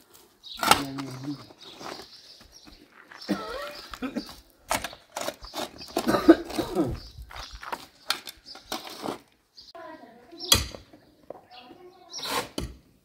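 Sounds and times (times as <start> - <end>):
shovel scraping stony soil: 4.8 - 7.0, 7.7 - 9.3, 12.1 - 12.7.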